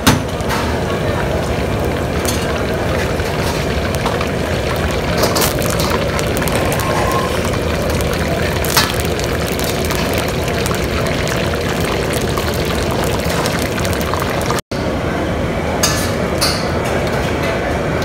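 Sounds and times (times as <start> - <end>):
food sizzling in hot oil: 0.4 - 14.6.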